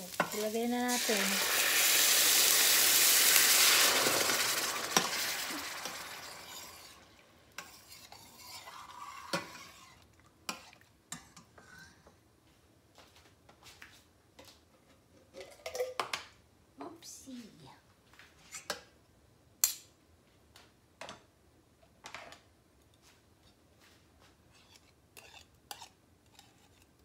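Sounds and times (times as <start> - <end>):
cream sizzling in hot pan: 0.0 - 10.6.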